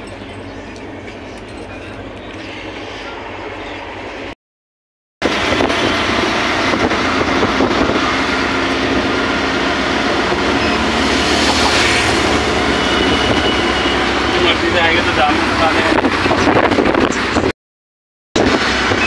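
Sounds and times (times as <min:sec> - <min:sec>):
wind and road noise: 0:05.2 - 0:17.5, 0:18.4 - 0:19.0.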